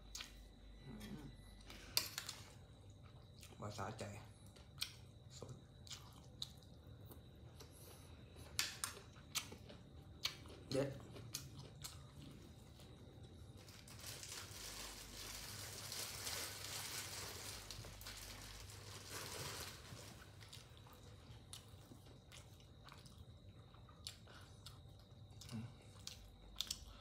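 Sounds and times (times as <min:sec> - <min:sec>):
person chewing crunchy food: 0:02.7 - 0:14.8, 0:18.7 - 0:27.0.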